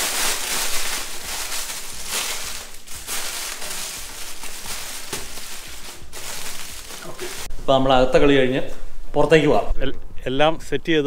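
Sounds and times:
paper and leaf rustling: 0:00.0 - 0:07.5.

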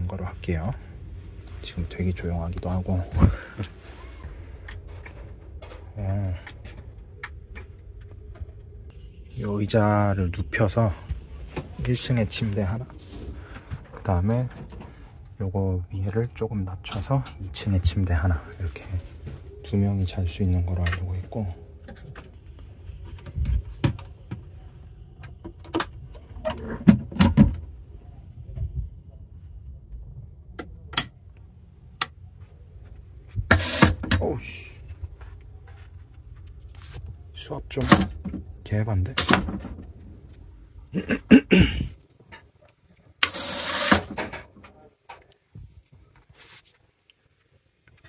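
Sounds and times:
low steady rumble: 0:00.0 - 0:19.6, 0:27.6 - 0:33.5
water gushing from tap: 0:43.2 - 0:44.1.

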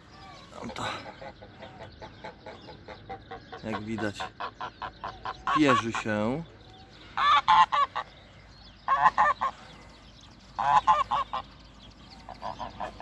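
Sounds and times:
geese honking: 0:00.0 - 0:06.4, 0:07.0 - 0:13.0.

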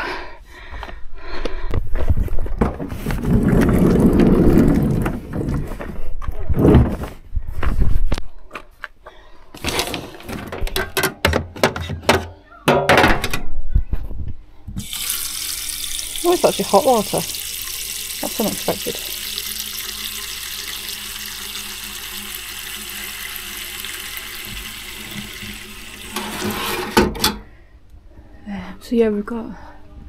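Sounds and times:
rustling and handling noise: 0:01.8 - 0:12.3
water running into metal sink: 0:03.2 - 0:05.8, 0:14.8 - 0:27.4.

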